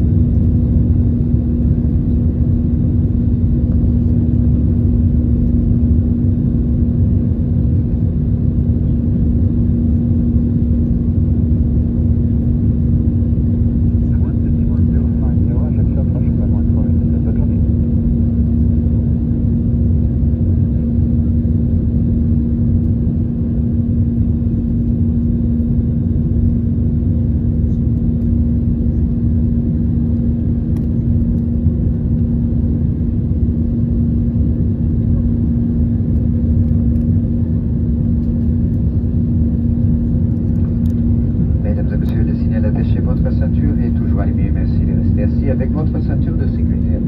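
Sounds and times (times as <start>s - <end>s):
airplane cabin engine roar: 0.0s - 47.0s
constant hum: 0.0s - 47.0s.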